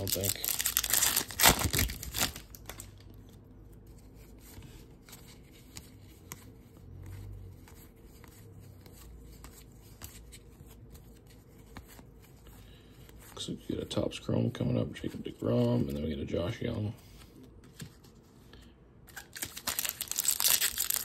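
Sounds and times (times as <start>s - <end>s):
wrapper torn open with crinkling: 0.0s - 3.1s, 19.1s - 21.0s.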